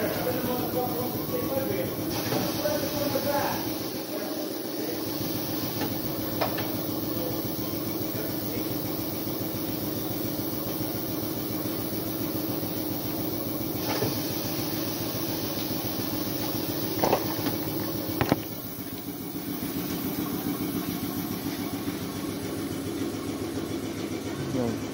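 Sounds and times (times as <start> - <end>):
workshop machinery humming: 0.0 - 24.9.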